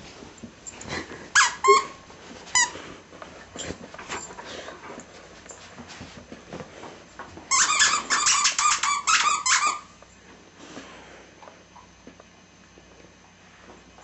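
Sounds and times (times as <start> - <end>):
dog toy squeaking: 1.4 - 2.0, 7.5 - 9.9.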